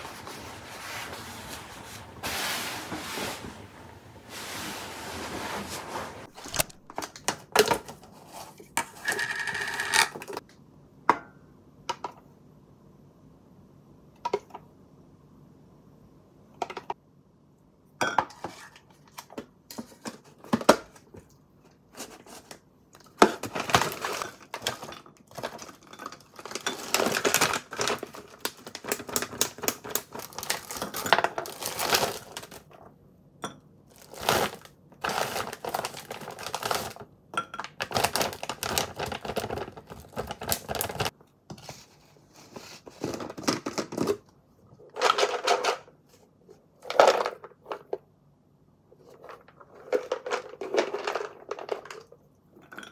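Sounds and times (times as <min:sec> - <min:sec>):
plastic bag crinkling: 0:23.4 - 0:32.8, 0:33.9 - 0:37.0, 0:37.8 - 0:41.1.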